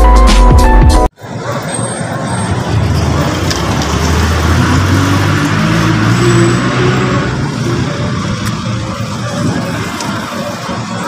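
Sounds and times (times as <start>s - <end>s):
road traffic noise: 1.1s - 11.0s
vehicle engine humming: 1.1s - 11.0s.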